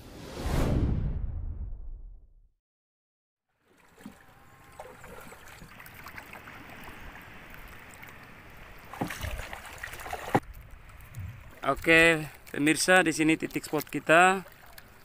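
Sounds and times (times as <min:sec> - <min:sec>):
water sloshing around canoe: 0:03.5 - 0:15.0.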